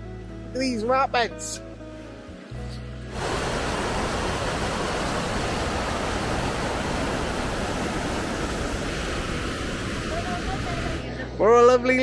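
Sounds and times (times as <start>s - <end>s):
river water rushing over weir: 3.1s - 11.0s.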